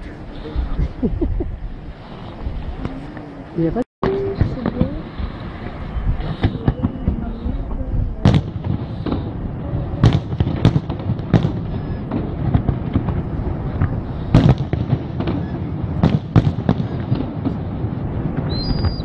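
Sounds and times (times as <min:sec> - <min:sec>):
firework pops and crackles: 0:04.0 - 0:09.4, 0:10.0 - 0:19.0.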